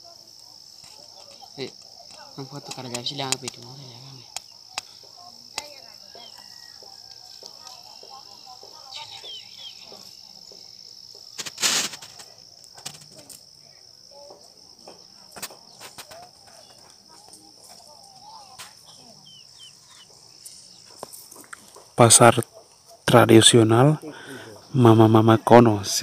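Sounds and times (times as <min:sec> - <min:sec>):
high-pitched insect drone: 0:00.0 - 0:22.4
distant chatter of voices: 0:00.0 - 0:26.0
scattered clicks: 0:00.8 - 0:03.7.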